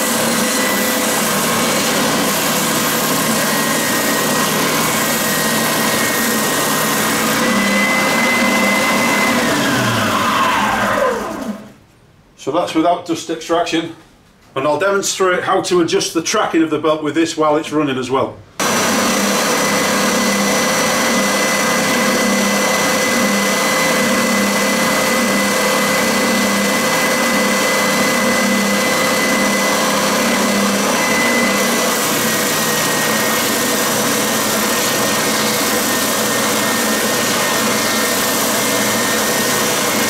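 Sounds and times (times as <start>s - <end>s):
belt sander running: 0.0s - 11.8s, 18.6s - 40.0s
wood sanding hiss: 25.5s - 40.0s.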